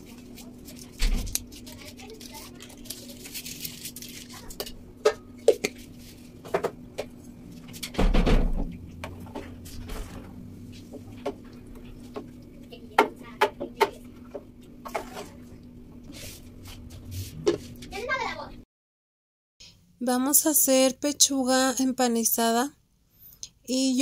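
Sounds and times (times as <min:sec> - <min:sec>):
steady low hum: 0:00.0 - 0:18.6.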